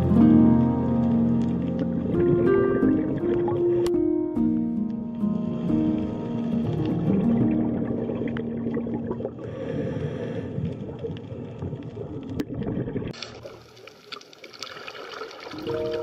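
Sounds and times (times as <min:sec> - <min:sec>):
long low underwater tone: 0:00.0 - 0:13.0
hissing crackling water: 0:00.0 - 0:16.0
gurgling rushing water: 0:05.9 - 0:16.0.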